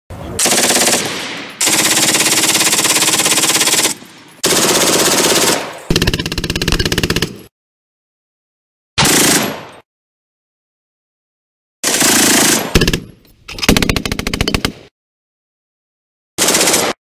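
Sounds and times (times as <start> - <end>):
machine gun automatic fire: 0.4 - 7.5, 9.0 - 9.8, 11.8 - 14.9, 16.4 - 17.0.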